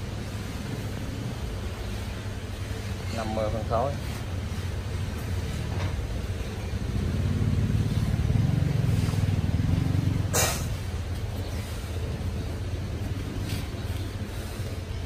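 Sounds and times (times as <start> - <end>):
vehicle engine humming: 0.0 - 15.0
short sharp hiss: 10.3 - 10.8.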